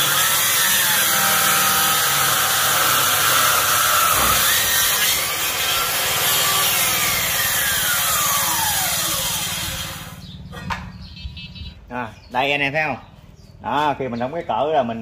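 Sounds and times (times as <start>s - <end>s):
circular saw cutting wood: 0.0s - 10.2s.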